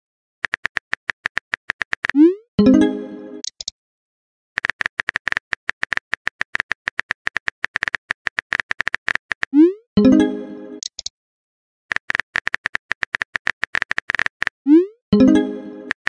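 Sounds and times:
phone keyboard clicks: 0.4s - 2.2s, 3.4s - 3.7s, 4.6s - 9.6s, 10.8s - 11.1s, 11.9s - 14.6s.

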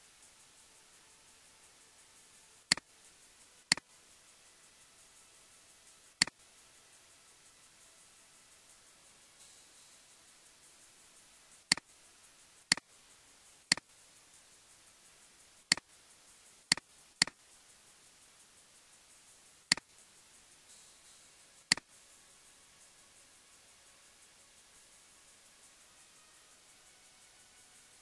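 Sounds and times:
faint steady hiss: 0.0s - 28.0s
computer mouse clicks: 2.7s - 2.9s, 11.7s - 11.9s, 12.7s - 12.9s, 13.7s - 13.9s, 15.7s - 15.9s, 16.7s - 17.4s, 19.7s - 19.9s, 21.7s - 21.9s.

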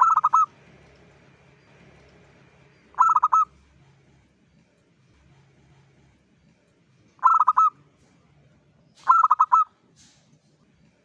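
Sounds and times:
dove cooing: 0.0s - 0.5s, 3.0s - 3.6s, 7.2s - 7.8s, 9.0s - 9.7s.

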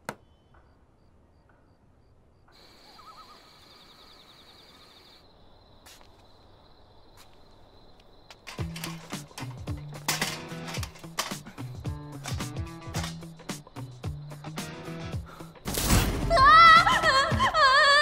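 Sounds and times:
insects chirring: 0.1s - 18.0s
wavering bird call: 2.6s - 5.0s.

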